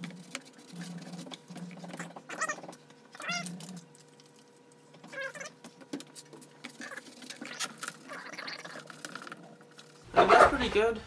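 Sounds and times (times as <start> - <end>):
cat meowing: 5.1 - 5.5.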